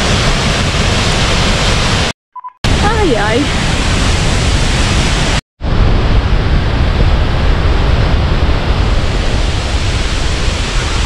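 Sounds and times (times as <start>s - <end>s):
waterfall rushing: 2.7s - 5.4s, 9.0s - 11.0s.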